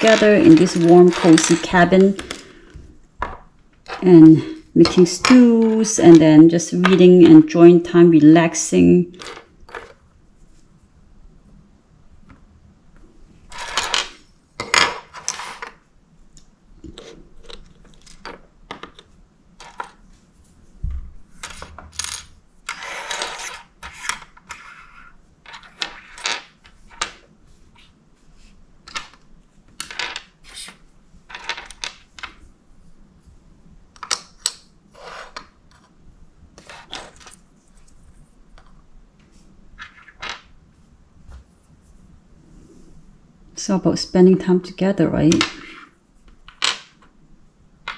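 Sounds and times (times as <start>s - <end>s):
miniature pieces clicking and clinking: 0.0s - 2.5s.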